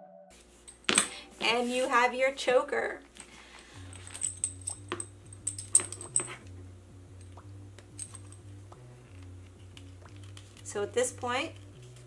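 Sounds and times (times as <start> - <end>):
faint background music: 0.9 - 12.0
metal spikes and buckle clinking: 3.8 - 6.5, 7.9 - 8.5.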